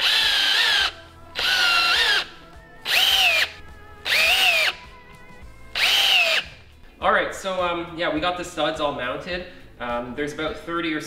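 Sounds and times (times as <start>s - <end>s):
cordless drill whine: 0.0s - 4.8s, 5.7s - 6.6s.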